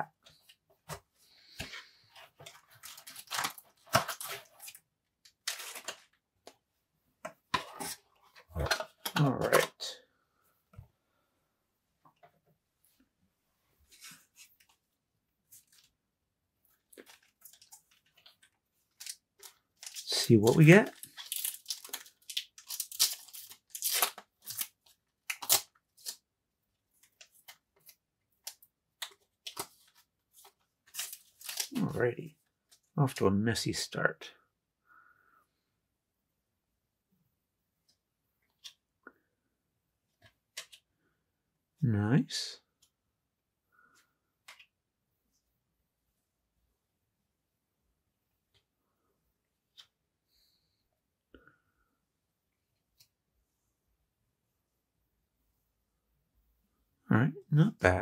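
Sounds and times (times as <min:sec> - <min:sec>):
foil wrappers crinkling: 0:19.0 - 0:26.2, 0:30.9 - 0:31.8.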